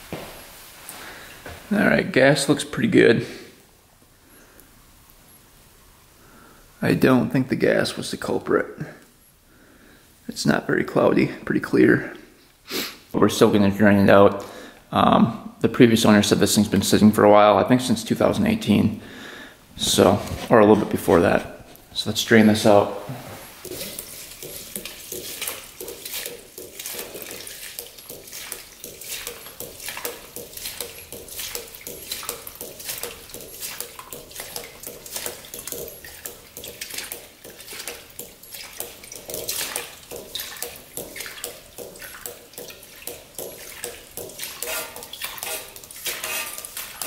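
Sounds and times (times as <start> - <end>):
gasoline splashing into a plastic pan: 23.6 - 47.0.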